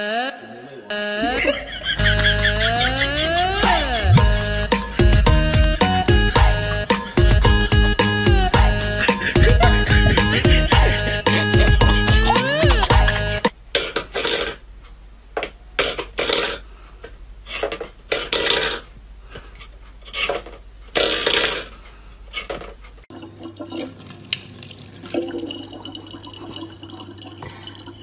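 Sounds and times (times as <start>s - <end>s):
tap running and splashing: 23.1s - 27.7s.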